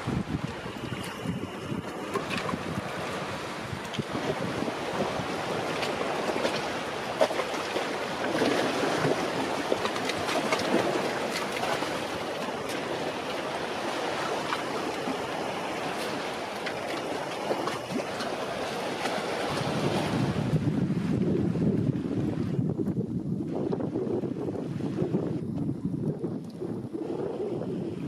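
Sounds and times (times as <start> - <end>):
seawater washing around rocks: 0.0 - 21.0
wind on microphone: 0.0 - 28.0.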